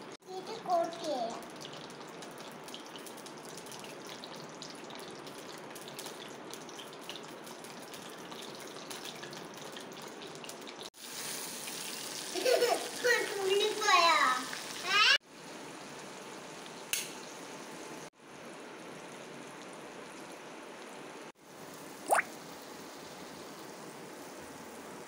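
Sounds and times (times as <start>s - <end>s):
oil sizzling while deep-frying: 0.0s - 25.0s.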